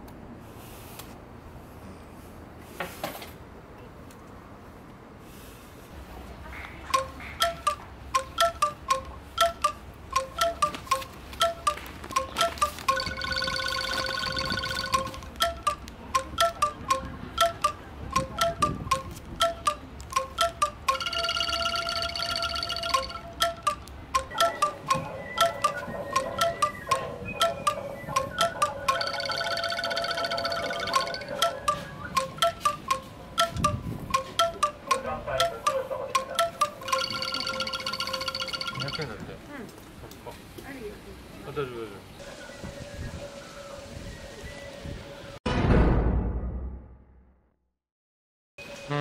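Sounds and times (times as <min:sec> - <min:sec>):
wind chimes ringing: 0:07.0 - 0:39.2.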